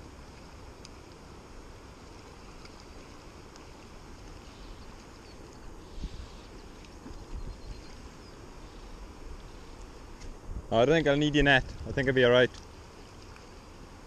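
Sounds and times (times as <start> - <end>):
river water: 0.0 - 14.0
wind: 0.0 - 14.0.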